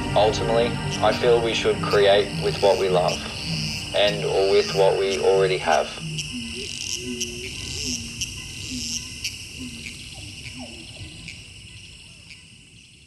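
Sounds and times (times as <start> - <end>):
short low calls: 0.0 - 8.2
high insect chorus: 0.0 - 13.0.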